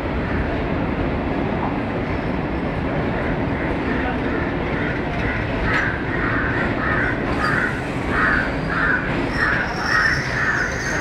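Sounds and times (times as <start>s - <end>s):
train rolling slowly: 0.0s - 11.0s
crow cawing: 4.8s - 10.8s.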